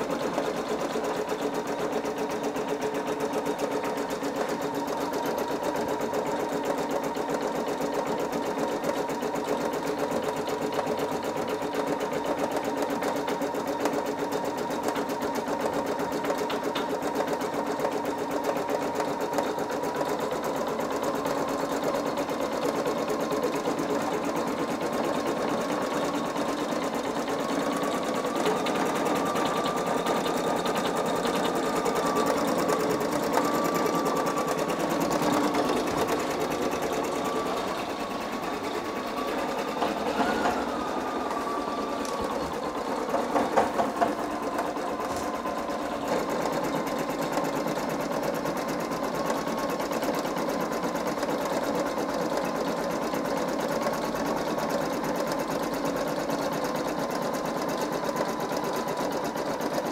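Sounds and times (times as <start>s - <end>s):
embroidery machine needle stitching: 0.0s - 59.9s
motor whine: 25.8s - 46.4s.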